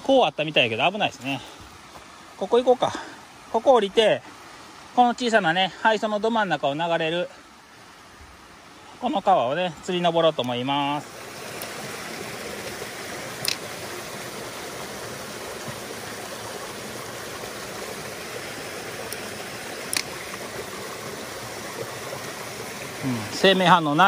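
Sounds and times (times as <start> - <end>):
stream running over rocks: 0.0 - 24.0
sharp clicks: 13.4 - 13.6, 19.9 - 20.2.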